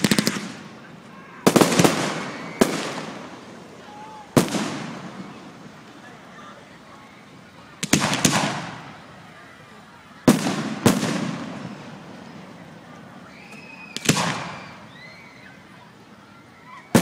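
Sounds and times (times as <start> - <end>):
firework shells bursting: 0.0 - 5.8, 7.8 - 9.1, 10.3 - 12.5, 13.8 - 14.9.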